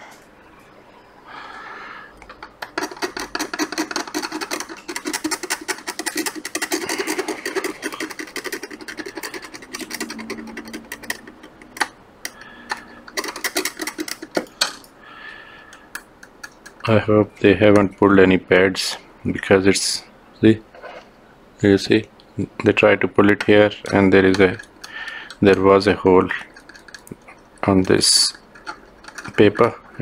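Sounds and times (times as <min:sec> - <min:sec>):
hand tool scraping circuit board: 0:02.6 - 0:14.6, 0:23.8 - 0:30.0.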